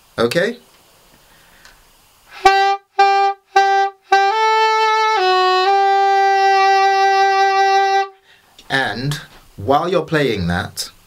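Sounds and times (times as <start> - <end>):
soprano saxophone melody: 2.3 - 8.4.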